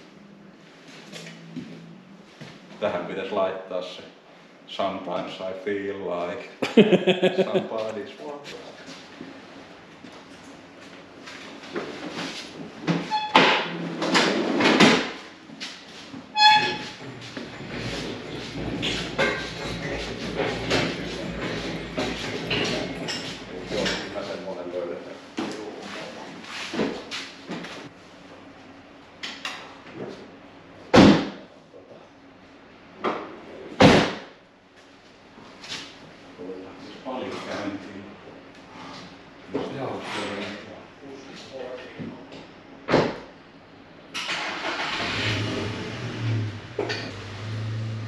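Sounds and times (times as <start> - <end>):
short high squeaks: 13.1 - 13.6, 16.4 - 20.0
engine crane rolling on concrete: 17.0 - 24.4.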